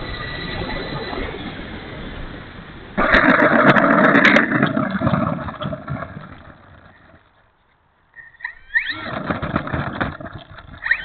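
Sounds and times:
model aircraft motor and propeller: 0:00.0 - 0:03.5, 0:08.2 - 0:11.0.

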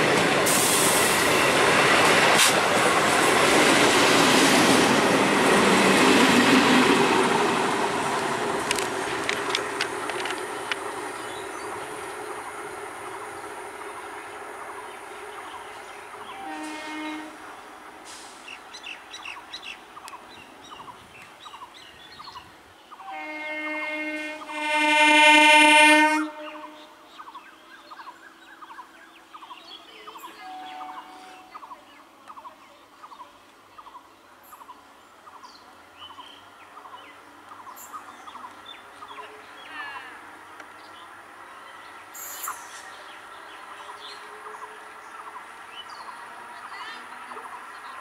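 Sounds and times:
birds chirping: 0:06.9 - 0:23.4
train horn blast: 0:16.3 - 0:17.5, 0:23.0 - 0:27.0.

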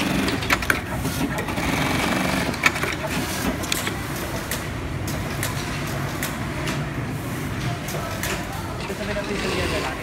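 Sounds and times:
sewing machines rattling: 0:00.0 - 0:03.7.

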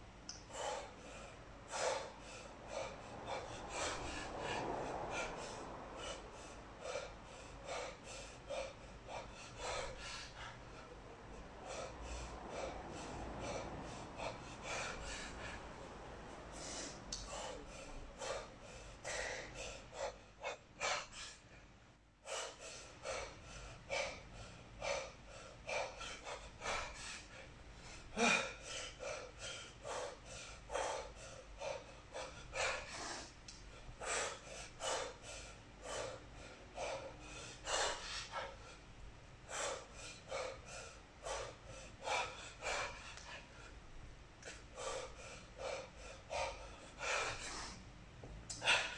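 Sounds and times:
person breathing hard: 0:00.3 - 0:48.9
person gasping: 0:27.9 - 0:29.3, 0:48.5 - 0:48.9.

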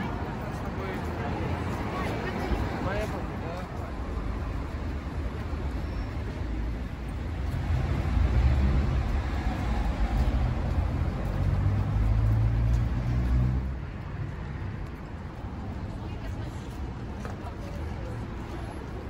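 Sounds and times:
city street traffic: 0:00.0 - 0:19.0
vehicle engine rumble: 0:00.0 - 0:19.0.

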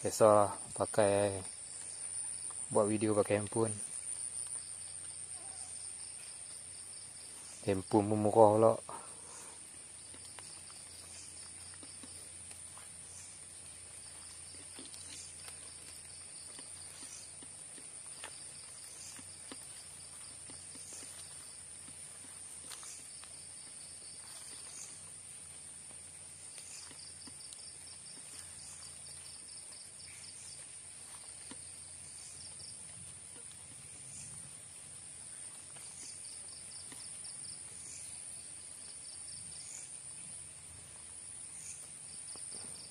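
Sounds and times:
insect high-pitched trill: 0:00.0 - 0:42.9
insect pulsed chirping: 0:00.0 - 0:42.9.

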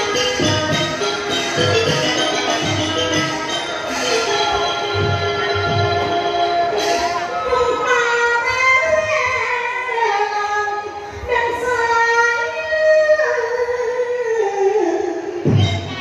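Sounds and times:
woman singing into a microphone: 0:05.2 - 0:16.0.

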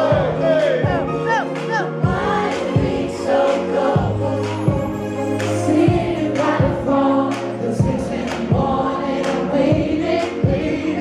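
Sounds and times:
kick drum beat: 0:00.0 - 0:03.1, 0:07.8 - 0:08.9
deep bass line: 0:00.0 - 0:11.0.

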